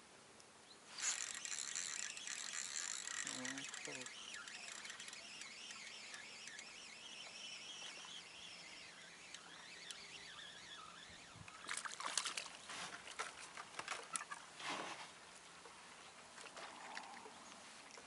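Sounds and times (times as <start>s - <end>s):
fish splashing at water surface: 11.6s - 14.4s.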